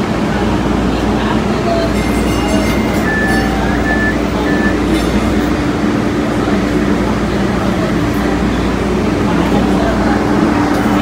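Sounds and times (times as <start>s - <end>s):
train rumble: 0.0s - 11.0s
humming tone: 2.0s - 5.2s
short high tones: 2.0s - 5.4s.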